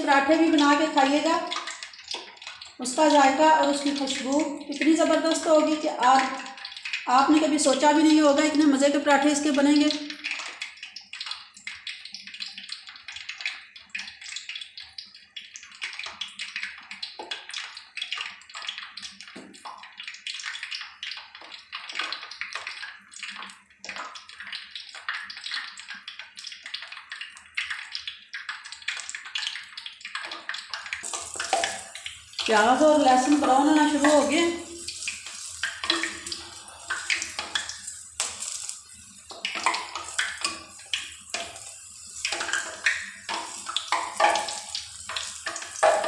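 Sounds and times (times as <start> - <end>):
oil crackling and sizzling: 0.0 - 46.0.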